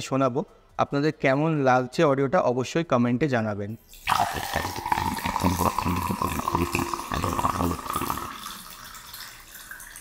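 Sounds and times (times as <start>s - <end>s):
water pouring into a glass: 3.8s - 10.0s.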